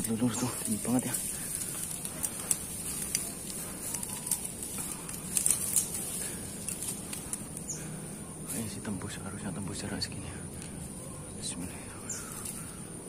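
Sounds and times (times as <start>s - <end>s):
light clicks and rustles: 0.0s - 8.7s, 12.2s - 12.8s.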